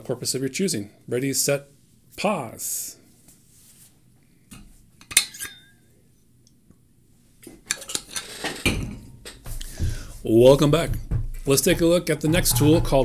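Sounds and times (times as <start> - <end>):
rattling knocks: 8.5 - 13.0.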